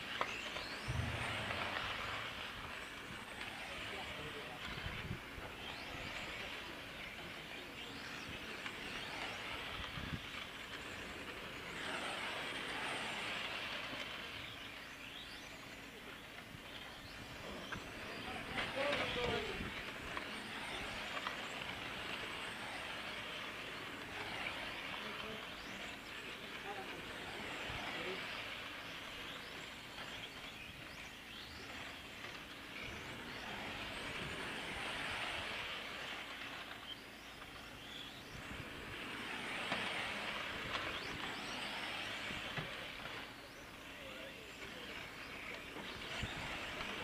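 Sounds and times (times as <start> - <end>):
faint whine passing by: 0.0 - 47.0
rc cars motor and tyre noise: 0.0 - 47.0.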